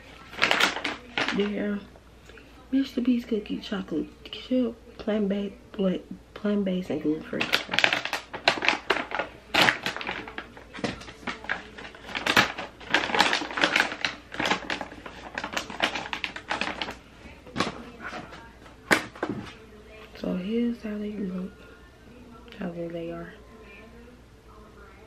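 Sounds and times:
wrapper crinkling: 0.0 - 1.6, 7.3 - 19.6
wrapper snap: 0.2 - 1.4, 7.4 - 19.3.

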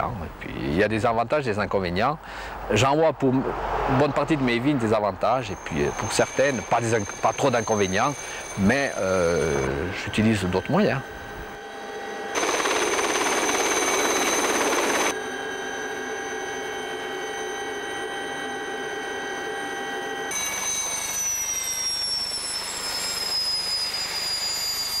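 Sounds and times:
helicopter turbine whine: 4.1 - 25.0
helicopter rotor noise: 5.5 - 25.0.

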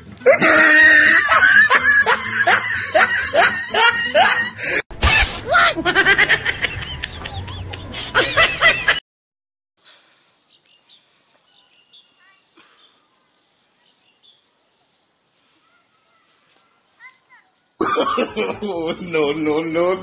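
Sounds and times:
people laughing: 0.3 - 4.8, 5.5 - 9.0, 17.8 - 19.4
bird chirps: 10.2 - 17.8.

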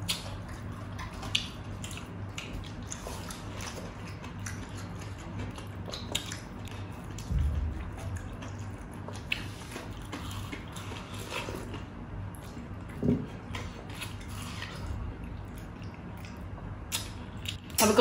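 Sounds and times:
chewing watermelon: 0.0 - 18.0.

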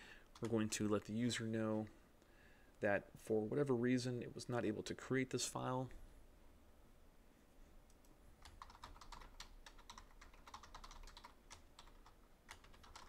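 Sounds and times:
computer keyboard typing: 0.3 - 0.6, 8.4 - 13.0.

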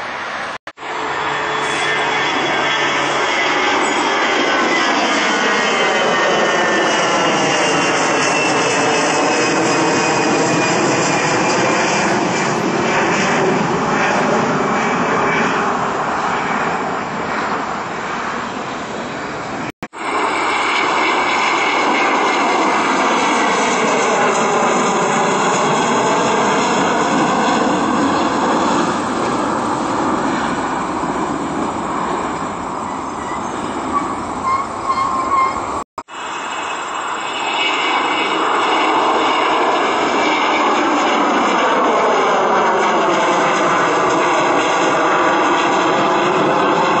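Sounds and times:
jet roar passing overhead: 0.0 - 47.0
jetliner climbing away: 0.0 - 47.0.

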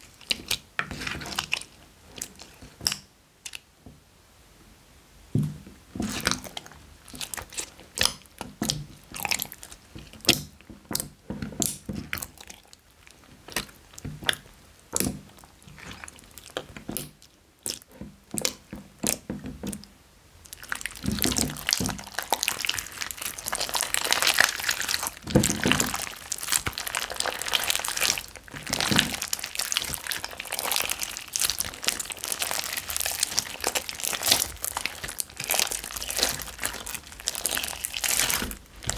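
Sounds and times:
slime crackling: 6.0 - 10.4, 20.4 - 38.9
slime squelching and clicking: 6.1 - 38.9.

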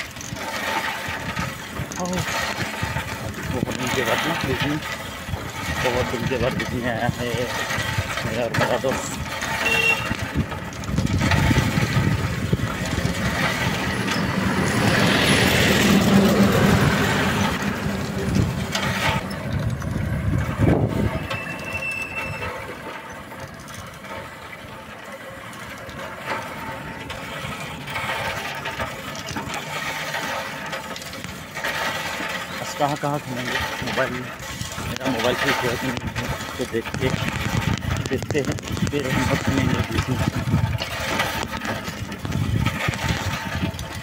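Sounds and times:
wind buffeting microphone: 0.0 - 24.3, 33.5 - 44.0
motor vehicle passing: 7.3 - 33.0.

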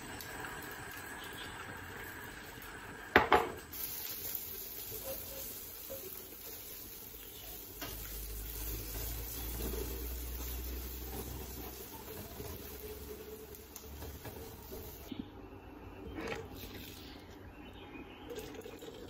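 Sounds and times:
egg sizzling in a frying pan: 0.0 - 15.1.

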